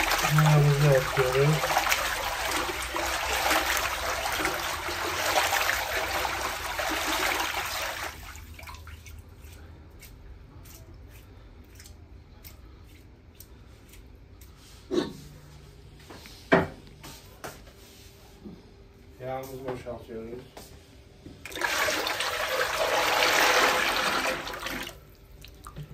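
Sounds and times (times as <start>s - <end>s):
water rushing and splashing: 0.0s - 8.7s
water sloshing: 0.0s - 9.6s.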